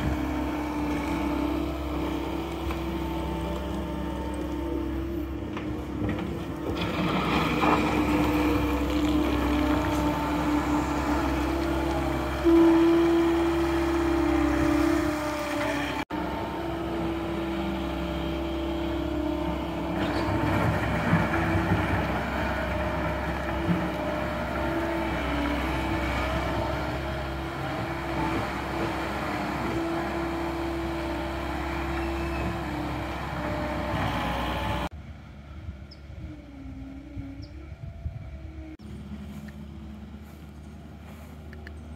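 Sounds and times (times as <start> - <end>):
diesel engine running under load: 0.0 - 41.9.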